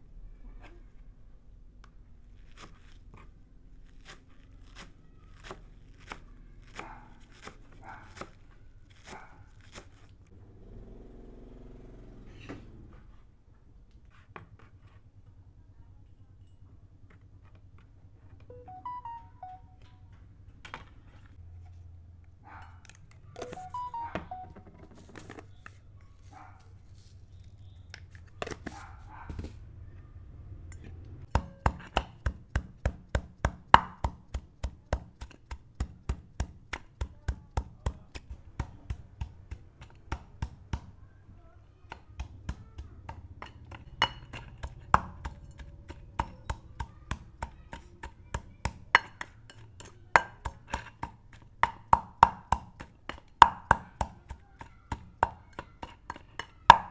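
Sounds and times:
knife chopping on cutting board: 31.3s - 40.9s.

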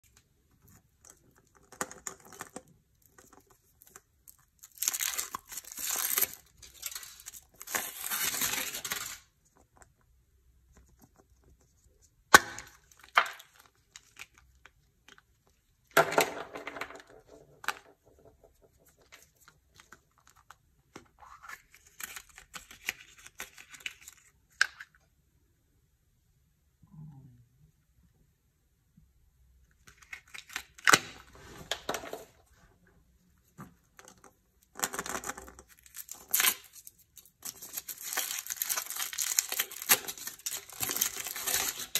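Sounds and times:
foil wrapper crinkling and tearing: 3.3s - 9.3s, 34.8s - 41.9s.

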